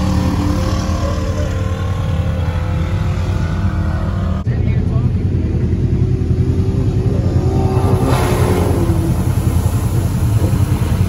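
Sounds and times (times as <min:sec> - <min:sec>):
quad bike engine revving: 0:00.0 - 0:11.0
water and mud splashing: 0:07.5 - 0:11.0.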